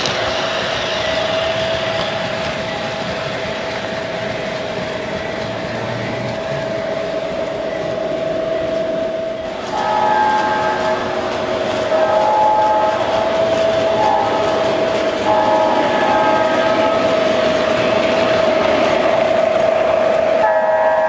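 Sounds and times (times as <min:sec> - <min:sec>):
model train wheels rumbling: 0:00.0 - 0:21.0
steady whine: 0:00.0 - 0:21.0
model train horn chord: 0:09.7 - 0:11.2, 0:11.8 - 0:14.6, 0:15.2 - 0:17.3, 0:20.4 - 0:21.0.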